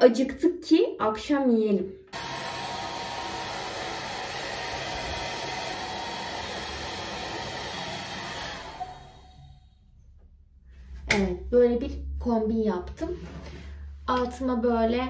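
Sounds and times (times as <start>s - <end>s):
hair dryer blowing: 2.1s - 9.6s.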